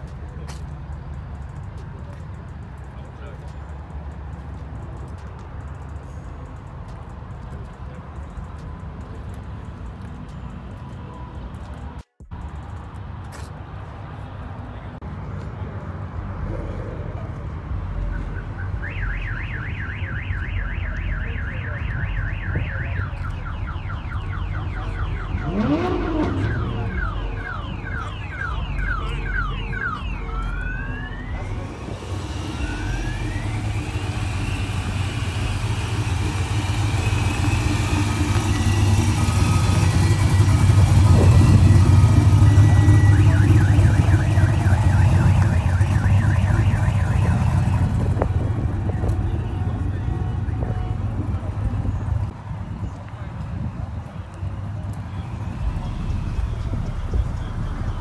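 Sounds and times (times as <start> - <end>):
car alarm chirps and whoops: 18.3 - 35.9, 41.4 - 48.0
pickup truck engine rumble: 22.5 - 52.4, 53.6 - 58.0.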